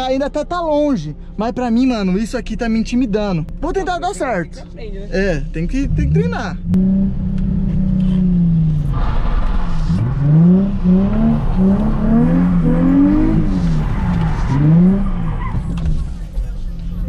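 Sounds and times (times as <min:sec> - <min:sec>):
car engine revving: 0:05.2 - 0:17.0.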